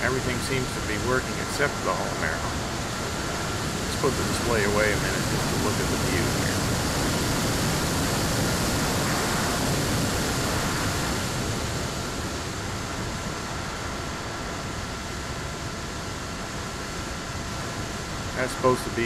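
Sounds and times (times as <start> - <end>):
faint steady whine: 0.0 - 19.0
wind and propeller noise: 0.0 - 19.0.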